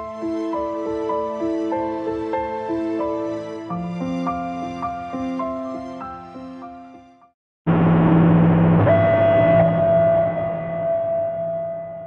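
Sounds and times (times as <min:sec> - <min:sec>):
low synthesizer drone chord: 0:07.7 - 0:12.0.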